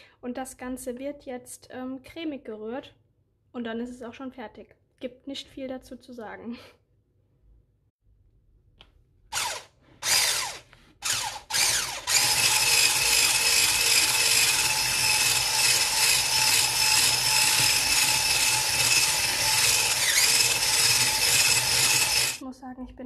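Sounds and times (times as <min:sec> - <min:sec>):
electric hand mixer whirring: 0:09.3 - 0:22.4.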